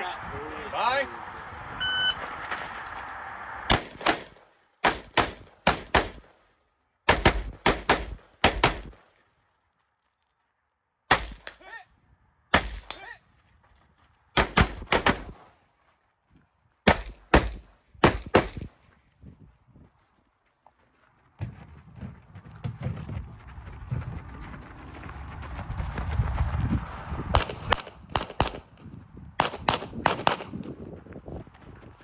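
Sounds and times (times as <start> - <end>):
gunshots: 3.7 - 6.4, 7.1 - 9.0, 11.1 - 11.7, 12.5 - 13.1, 14.4 - 15.4, 16.9 - 18.7, 27.3 - 28.7, 29.4 - 30.6.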